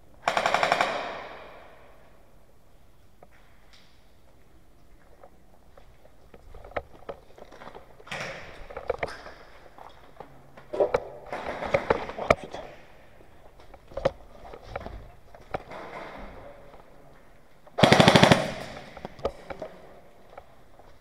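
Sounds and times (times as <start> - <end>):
airsoft gun full-auto burst: 0.2 - 1.5, 17.8 - 18.8.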